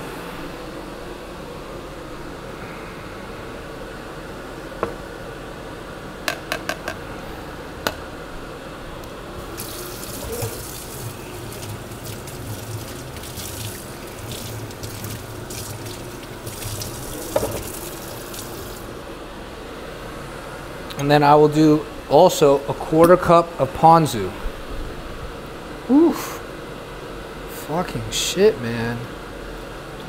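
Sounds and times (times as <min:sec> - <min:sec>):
tap water splashing in sink: 0:09.7 - 0:18.8.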